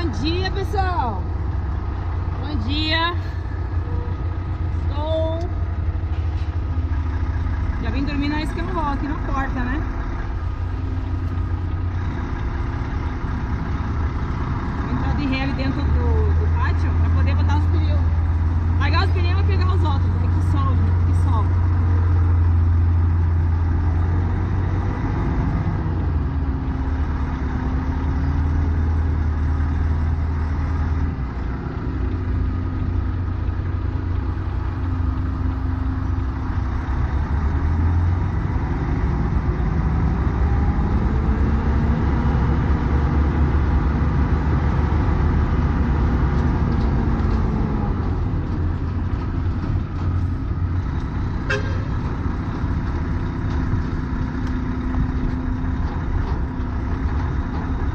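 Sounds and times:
truck diesel engine: 0:00.0 - 0:57.9.

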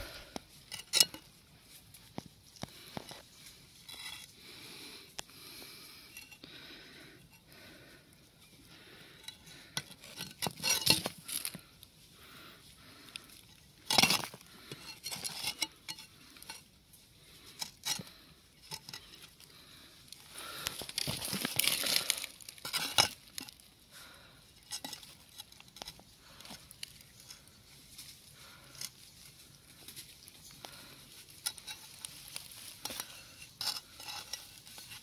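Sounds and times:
rustling: 0:17.2 - 0:35.0.

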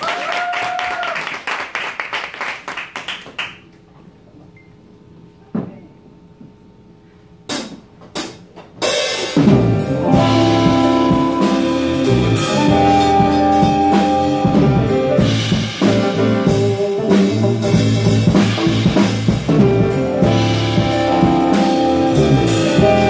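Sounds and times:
live band playing: 0:07.5 - 0:23.0.

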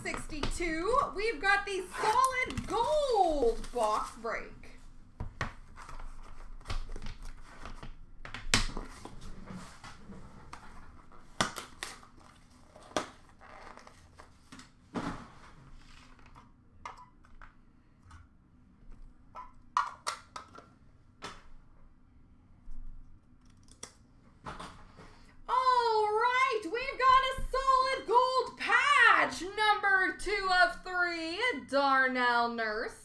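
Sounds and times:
cards crinkling and scraping: 0:01.8 - 0:04.5, 0:05.4 - 0:14.8.

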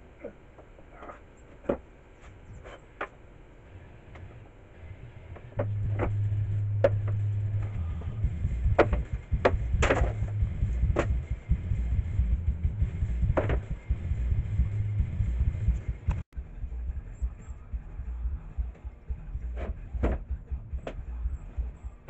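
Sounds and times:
bass-heavy background music: 0:04.8 - 0:22.0
plywood panels knocking: 0:08.7 - 0:10.3.

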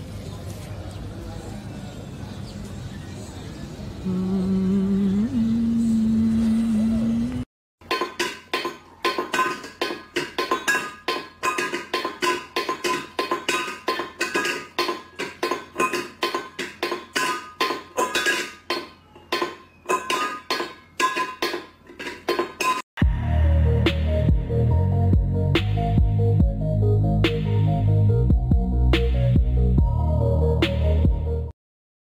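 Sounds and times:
metal bowl clinking on tile floor: 0:07.8 - 0:22.8.

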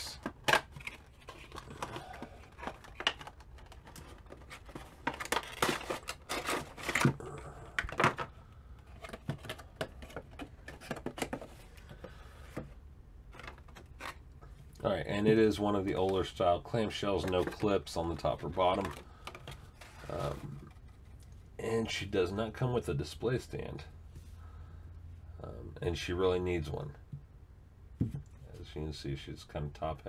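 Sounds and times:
cardboard box and plastic crackling: 0:00.0 - 0:12.7.

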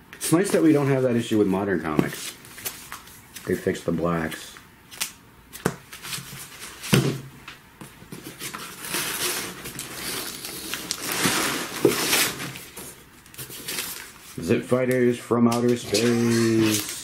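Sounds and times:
plastic bags rustling and crinkling: 0:08.1 - 0:14.6, 0:15.6 - 0:17.0.

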